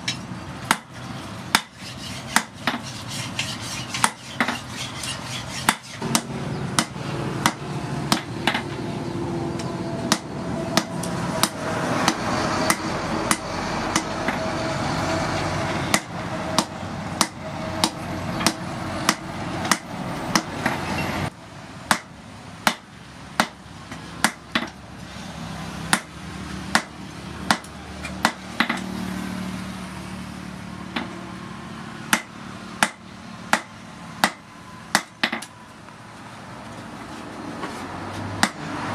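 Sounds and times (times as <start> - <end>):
hammer striking hot steel: 0.0 - 8.8, 9.6 - 14.4, 15.9 - 20.8, 21.9 - 24.8, 25.9 - 28.9, 32.1 - 35.5, 38.4 - 38.7.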